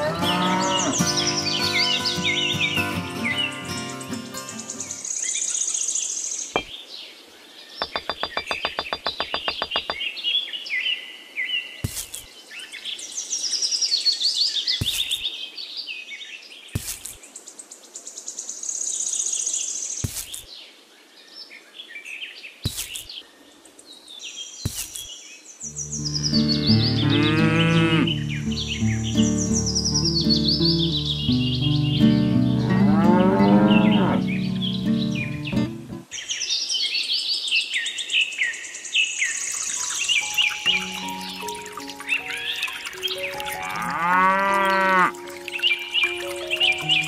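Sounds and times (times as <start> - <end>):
music: 0.0 - 5.0, 25.7 - 36.1, 40.2 - 43.9, 45.1 - 47.0
birds chirping and trilling: 0.0 - 47.0.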